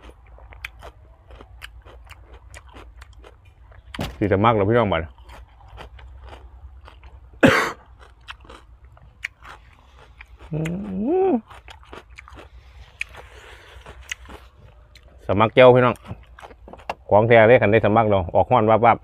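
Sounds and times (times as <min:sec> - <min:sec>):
person chewing and crunching food: 0:00.0 - 0:04.0, 0:04.8 - 0:17.1
person humming: 0:10.5 - 0:11.4.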